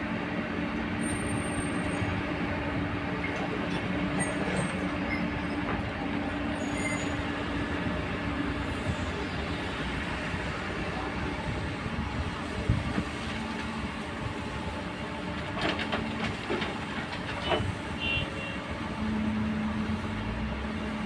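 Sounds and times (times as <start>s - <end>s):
excavator engine and hydraulics: 0.0s - 21.0s.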